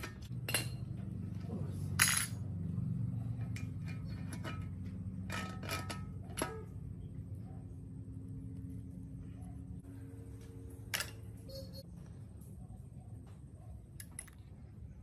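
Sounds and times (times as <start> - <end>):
metal tools clicking and clinking: 0.0 - 2.6, 3.2 - 6.8, 10.8 - 11.6
steady low hum: 0.0 - 15.0.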